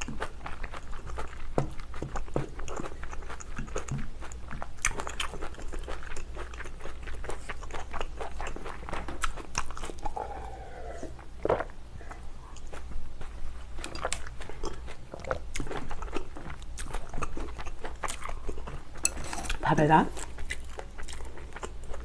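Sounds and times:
wet chewing and mouth smacks: 0.0s - 22.0s
person speaking: 19.4s - 20.2s.

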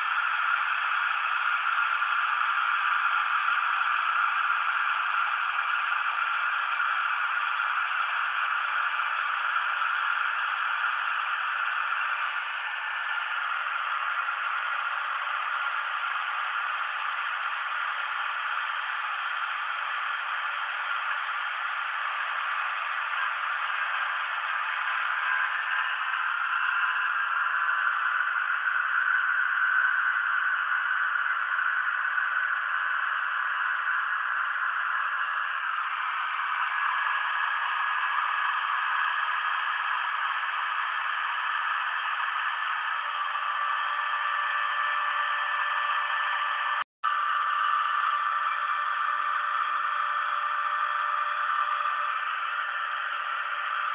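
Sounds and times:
machine spindle whirring: 0.0s - 53.9s
rotary tool routing plastic: 18.5s - 53.9s.

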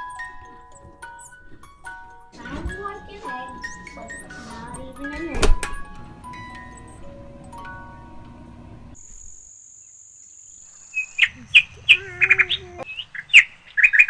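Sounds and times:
soft music: 0.0s - 9.0s
birds chirping: 0.0s - 14.0s
high insect whine: 8.9s - 12.8s.

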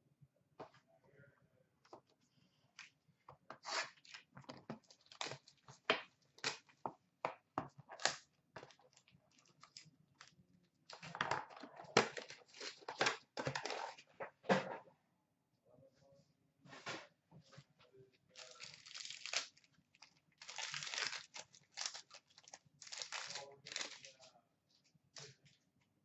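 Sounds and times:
packaging crinkling and tearing: 4.9s - 5.6s, 8.0s - 10.4s, 12.0s - 14.0s, 18.3s - 24.3s.

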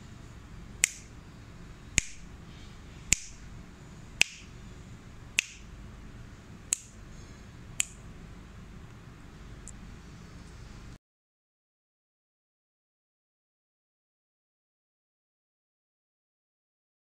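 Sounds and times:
sharp finger snaps: 0.8s - 1.1s, 2.0s - 2.3s, 3.1s - 3.4s, 4.2s - 4.6s, 5.4s - 5.7s, 6.7s - 7.0s, 7.8s - 8.0s.

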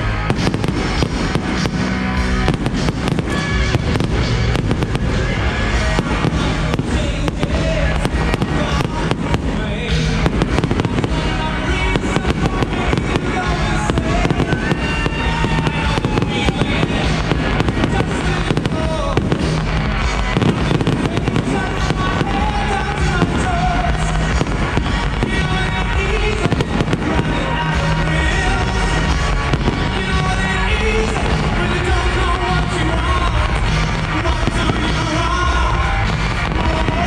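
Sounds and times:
music playing: 0.0s - 37.0s.

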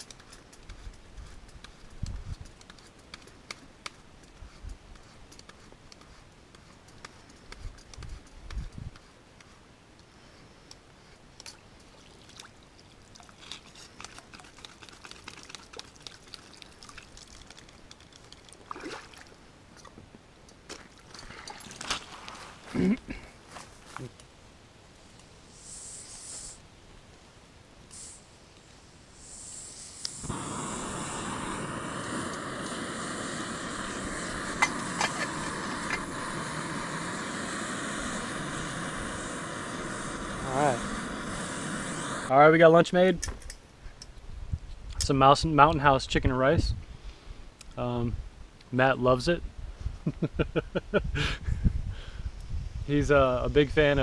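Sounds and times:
camp stove hissing: 25.4s - 26.6s, 27.9s - 42.9s.

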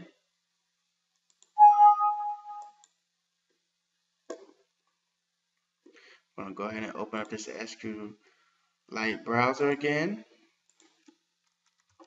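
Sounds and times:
computer alert chime: 1.6s - 2.7s.

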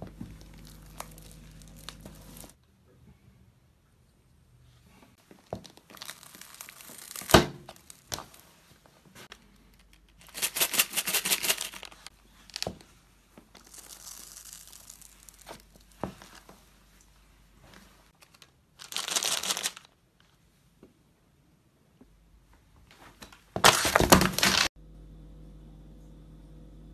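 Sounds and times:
candy crunching underfoot: 0.0s - 2.6s, 5.3s - 8.4s, 9.3s - 12.8s, 13.5s - 16.5s, 18.1s - 20.0s, 23.6s - 24.7s
wrappers crinkling and tearing: 0.3s - 2.6s, 5.5s - 8.5s, 9.6s - 12.8s, 13.5s - 16.4s, 18.1s - 20.3s, 23.6s - 24.7s.

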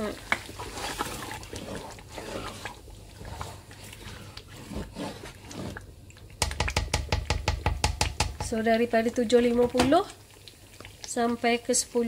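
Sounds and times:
spatula scraping a pot: 0.0s - 5.9s
thick gravy bubbling: 0.0s - 12.0s.

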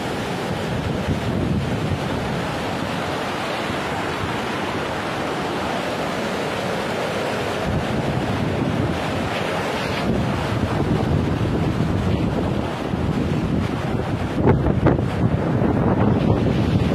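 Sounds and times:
wind buffeting microphone: 0.0s - 6.4s, 7.4s - 16.9s
flood water rushing: 0.0s - 16.9s.

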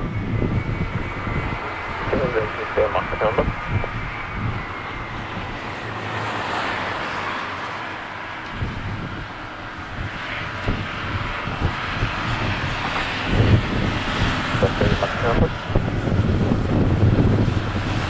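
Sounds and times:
wind buffeting microphone: 0.0s - 6.2s, 8.5s - 18.0s
jet engines running: 0.0s - 18.0s.

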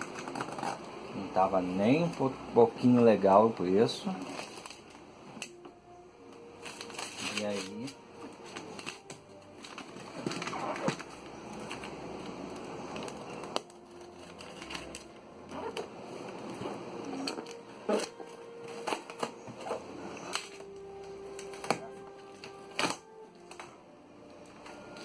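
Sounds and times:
cardboard scraping and rustling: 9.6s - 12.0s.

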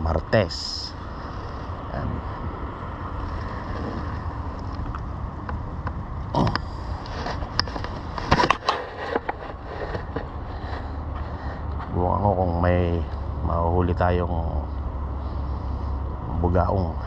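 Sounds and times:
wind rumble on microphone: 0.0s - 17.0s
fishing gear clicks and knocks: 6.5s - 10.4s.

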